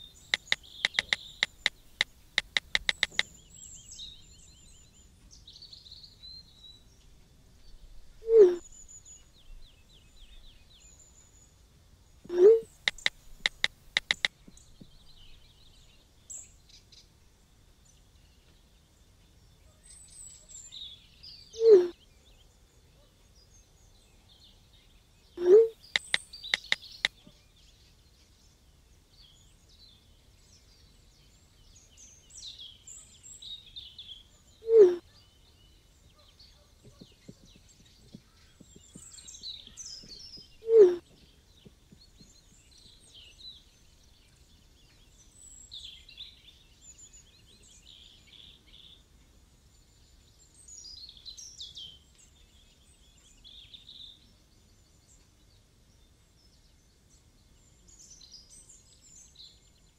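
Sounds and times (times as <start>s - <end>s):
birds chirping and singing: 0.0s - 7.0s, 12.3s - 16.6s, 24.8s - 27.8s, 29.2s - 49.0s
typing taps on phone: 0.2s - 3.3s, 12.8s - 14.3s, 25.9s - 27.2s
phone text message alert pops: 0.3s - 3.2s, 12.3s - 14.3s.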